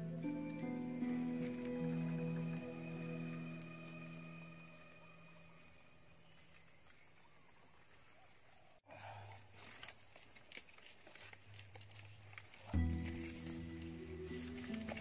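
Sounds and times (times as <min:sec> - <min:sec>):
rope rustling and clicks: 0:09.4 - 0:15.0.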